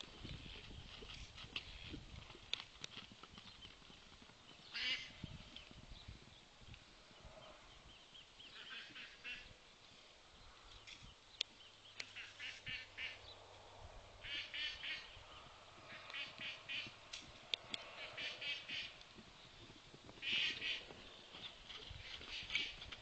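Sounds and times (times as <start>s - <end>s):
birds calling: 4.4s - 5.7s, 7.1s - 9.8s, 10.4s - 13.6s, 14.2s - 23.0s.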